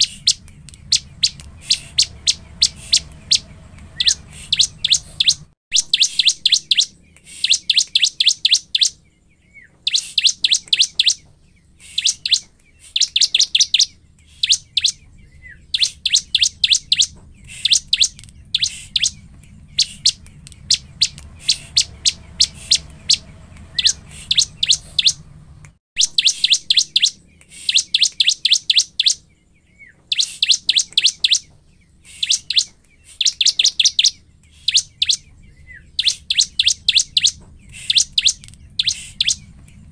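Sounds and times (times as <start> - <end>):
bird singing rapid high notes: 0.0 - 25.4, 26.0 - 39.9.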